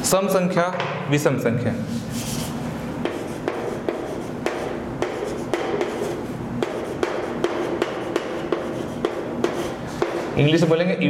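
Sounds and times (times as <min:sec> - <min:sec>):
chalk scratching: 0:02.0 - 0:10.4
chalk tapping on chalkboard: 0:02.2 - 0:10.4.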